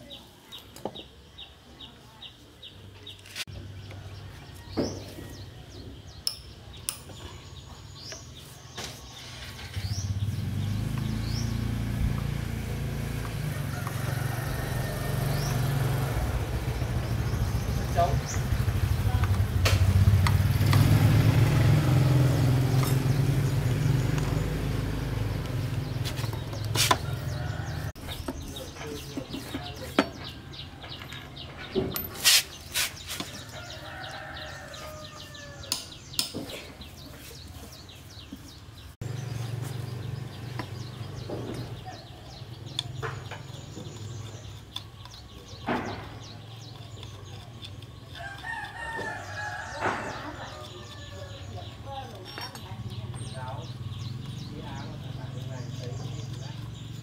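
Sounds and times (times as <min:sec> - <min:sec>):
small engine rumbling: 0:02.8 - 0:57.0
hand tools clicking and knocking: 0:06.2 - 0:07.4, 0:22.6 - 0:23.2, 0:25.3 - 0:33.4, 0:35.6 - 0:36.8, 0:40.5 - 0:57.0.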